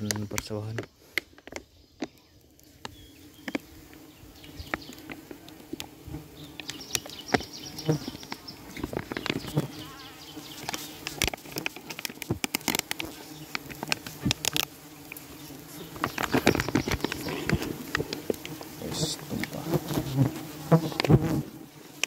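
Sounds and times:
sharp clicks and taps: 0.0 - 2.2
bees buzzing: 2.6 - 22.0.

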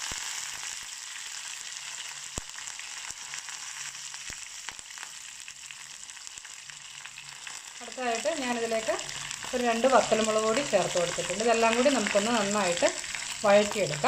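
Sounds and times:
hot oil sizzling in a wok: 0.0 - 14.0.

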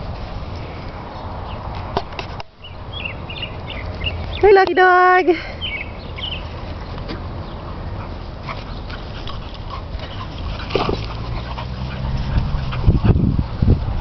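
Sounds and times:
dogs yipping and whining: 8.7 - 13.2.

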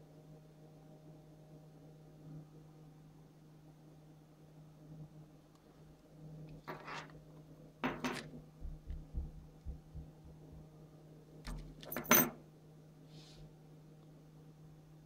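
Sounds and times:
small knocks and clinks: 7.8 - 10.0, 11.5 - 12.4.

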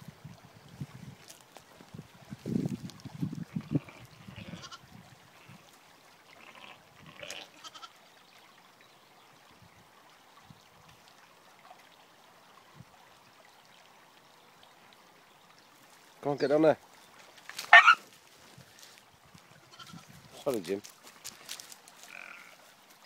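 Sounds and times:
sheep bleating: 3.5 - 4.8, 6.3 - 7.9, 19.7 - 20.1, 22.1 - 22.6.

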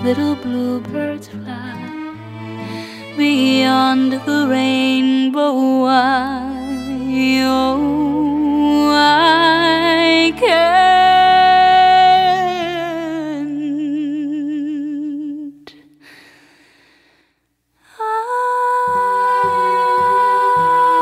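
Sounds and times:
sustained string notes: 0.0 - 5.2, 6.1 - 13.7.

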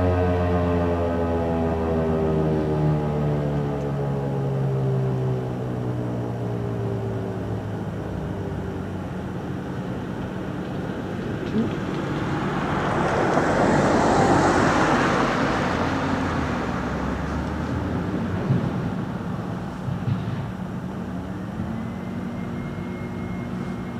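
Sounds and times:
siren winding down: 0.0 - 9.0, 21.2 - 23.9
vehicle passing by: 0.0 - 23.9.

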